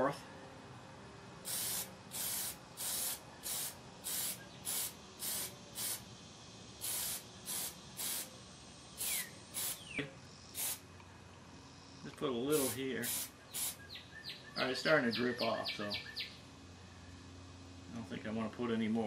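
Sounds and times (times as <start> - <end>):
aerosol spray hissing: 1.4 - 6.1, 6.8 - 8.3, 8.9 - 10.8, 12.5 - 13.8.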